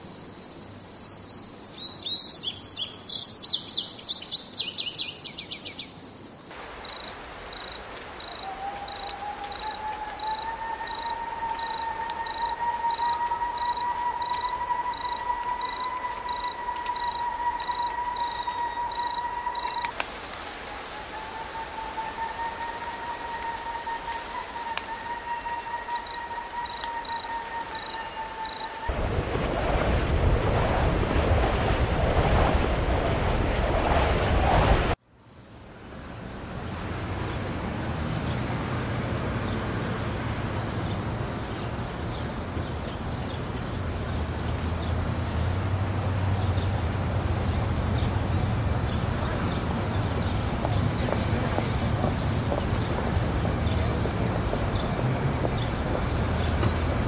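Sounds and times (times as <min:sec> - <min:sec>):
steady hiss: 0:00.0 - 0:03.5, 0:05.8 - 0:28.9
rushing noise: 0:06.5 - 0:35.0
high chirps: 0:06.9 - 0:28.9
steady whistling tone: 0:08.2 - 0:20.0, 0:20.6 - 0:28.9.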